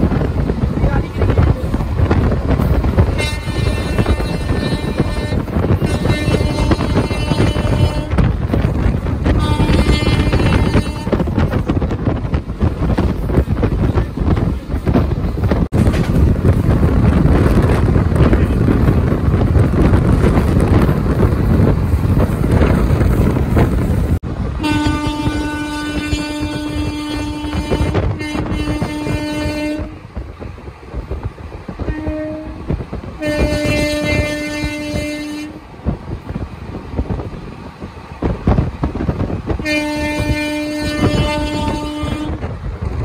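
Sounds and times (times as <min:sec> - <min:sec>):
moving train rumble: 0:00.0 - 0:43.0
wind buffeting microphone: 0:00.0 - 0:43.0
train horn blasts: 0:03.0 - 0:11.6, 0:24.6 - 0:30.1, 0:31.8 - 0:35.7, 0:39.5 - 0:42.6.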